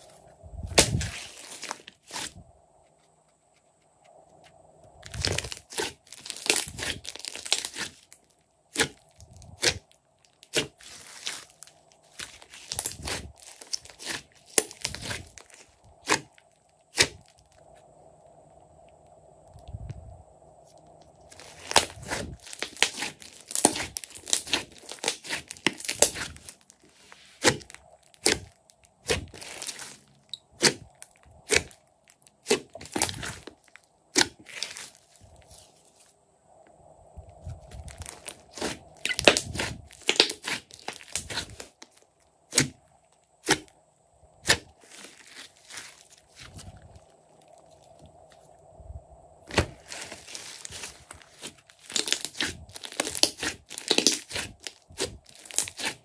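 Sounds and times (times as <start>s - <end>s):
slime crackling and popping: 5.0s - 17.6s, 20.8s - 35.0s, 37.7s - 42.8s, 49.5s - 56.0s.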